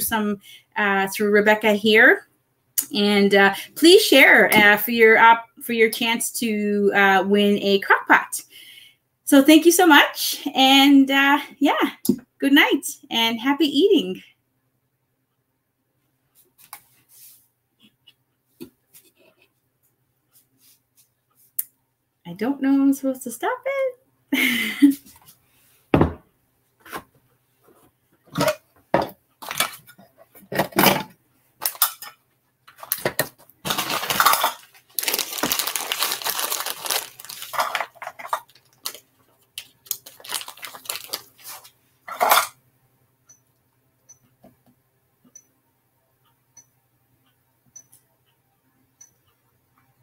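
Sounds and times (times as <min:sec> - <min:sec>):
plastic bag rustling: 0:33.6 - 0:42.4.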